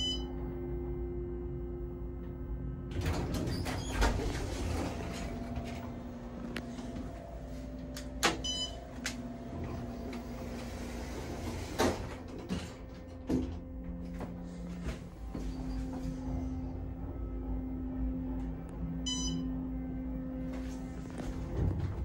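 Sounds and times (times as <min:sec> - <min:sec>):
steady low hum: 0:00.0 - 0:22.0
door gear clicks and clunks: 0:02.9 - 0:06.1, 0:11.0 - 0:14.5
elevator doors sliding shut: 0:02.9 - 0:17.0, 0:21.1 - 0:22.0.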